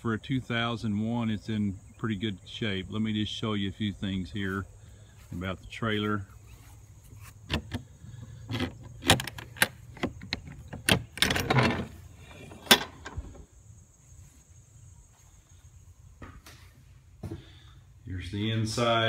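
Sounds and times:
rattling scrape: 6.6 - 13.4
trailer door latch clanks: 8.5 - 13.4.

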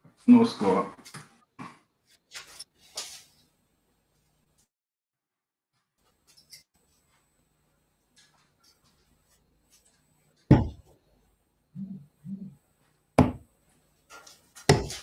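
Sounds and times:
sharp knocks: 10.5 - 10.9, 13.2 - 13.4, 14.7 - 15.0.

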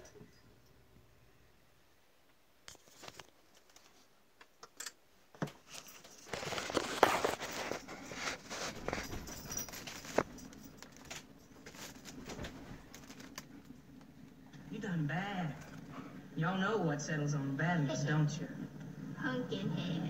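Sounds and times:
faint low hum: 0.0 - 4.5, 5.2 - 20.0
vinyl crackle and pops: 2.3 - 4.5, 10.1 - 14.6.

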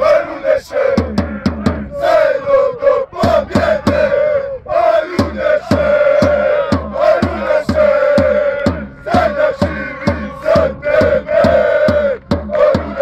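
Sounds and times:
men chanting in unison: 0.0 - 13.0
drum struck steadily: 0.9 - 2.0, 3.2 - 4.1, 5.1 - 13.0.

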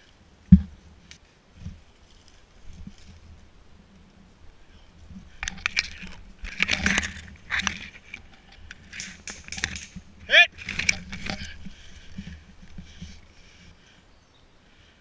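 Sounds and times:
undergrowth rustling and snapping: 4.4 - 13.7.

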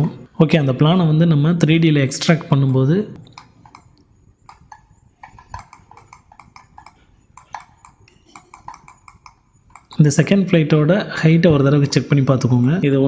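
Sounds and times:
computer mouse clicking: 3.2 - 10.0.

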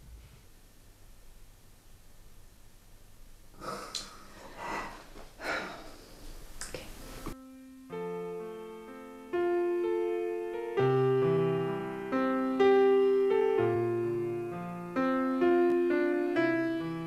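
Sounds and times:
person breathing loudly: 3.6 - 6.4
soft electric piano music: 7.1 - 17.0.

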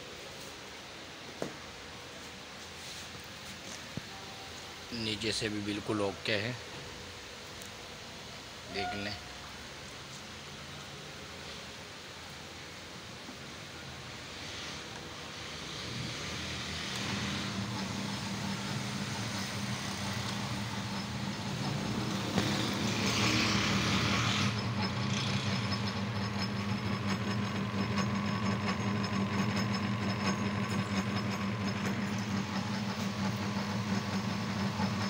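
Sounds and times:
electric motor humming: 15.5 - 35.0.

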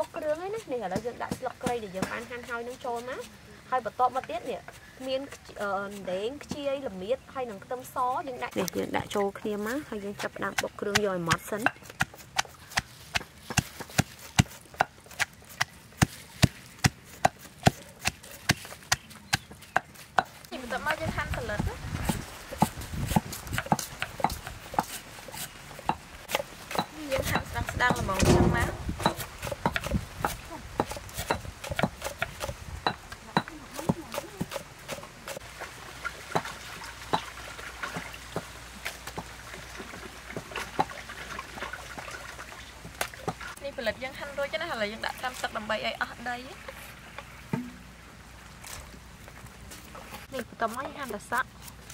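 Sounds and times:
pestle pounding in stone mortar: 0.0 - 3.1, 10.1 - 35.4, 47.6 - 47.9.

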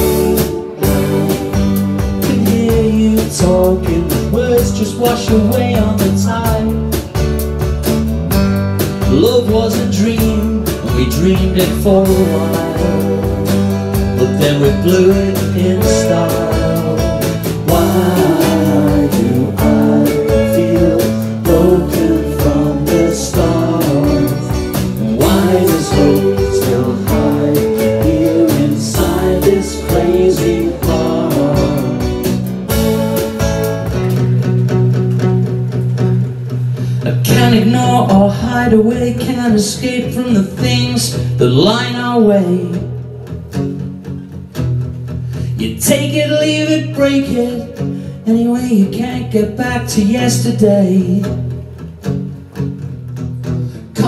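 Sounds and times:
man singing: 0.0 - 6.9, 9.1 - 32.4, 37.0 - 42.9, 45.6 - 51.4
live rock band playing: 0.0 - 38.6
strummed acoustic guitar: 0.0 - 54.0.

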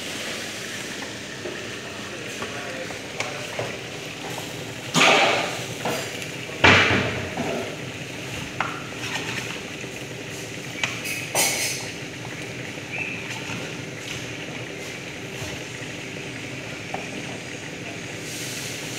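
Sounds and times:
food sizzling in a pan: 0.0 - 18.9
spatula scraping pan: 8.9 - 9.8.

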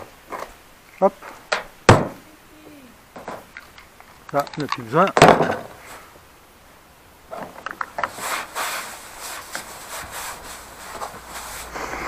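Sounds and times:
plastic cover rustling and scraping: 7.3 - 12.0.

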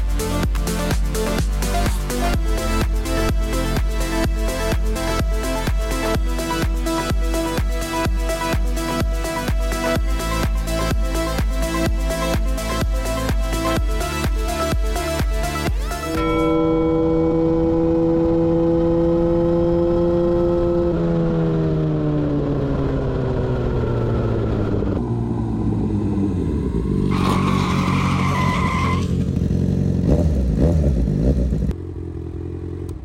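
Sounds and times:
motorcycle engine revving: 0.0 - 33.0
high-pitched squeal: 15.9 - 18.8, 26.4 - 29.2.

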